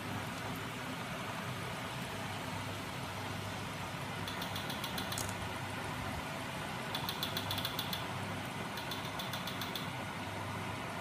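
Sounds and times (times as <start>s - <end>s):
rapid light clicking: 4.2s - 5.4s, 6.9s - 8.1s, 8.7s - 10.0s.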